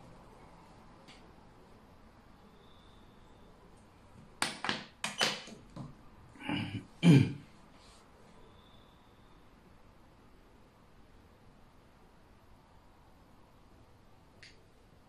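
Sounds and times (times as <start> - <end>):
man coughing: 6.4 - 7.5.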